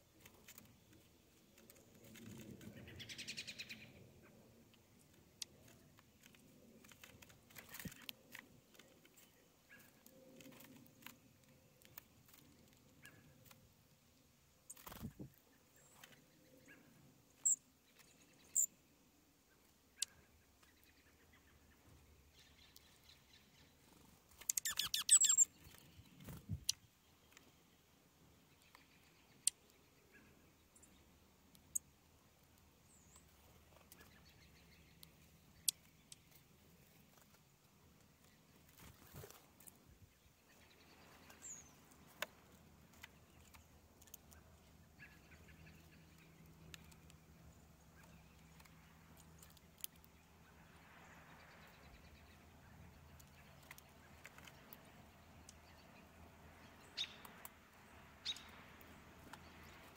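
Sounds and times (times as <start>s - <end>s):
high bird chirp: 18.4s - 18.7s, 24.4s - 26.8s, 56.8s - 57.3s.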